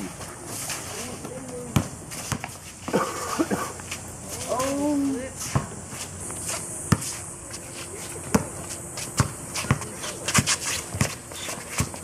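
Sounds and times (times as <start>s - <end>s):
sneakers scuffing on concrete: 0.0s - 12.0s
basketball bouncing on concrete: 1.2s - 3.0s, 5.4s - 5.8s, 6.9s - 7.1s, 8.2s - 8.6s, 9.2s - 12.0s.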